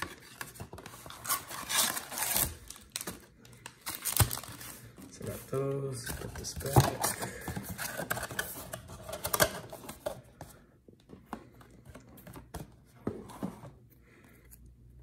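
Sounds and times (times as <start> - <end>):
card packs clicking and tapping: 5.9 - 10.3.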